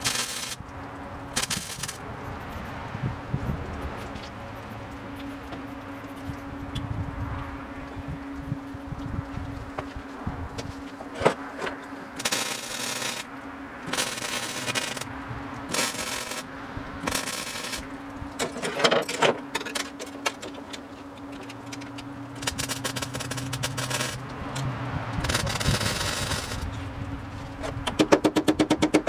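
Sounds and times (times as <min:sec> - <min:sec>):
welder crackling bursts: 0:00.0 - 0:00.7, 0:01.3 - 0:02.0, 0:12.1 - 0:18.5, 0:22.3 - 0:24.5, 0:25.2 - 0:26.7
steady welder hum: 0:00.0 - 0:28.0.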